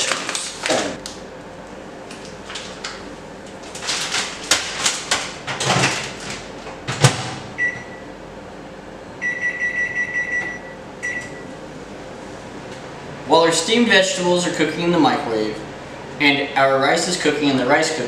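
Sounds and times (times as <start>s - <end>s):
microwave keypad beeps: 7.6s - 8.1s, 9.2s - 11.5s.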